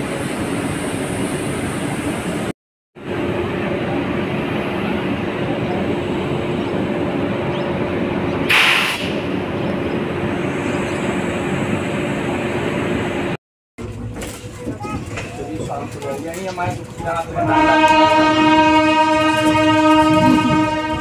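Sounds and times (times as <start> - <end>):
electric locomotive humming: 0.0 - 21.0
brief hiss: 8.5 - 9.2.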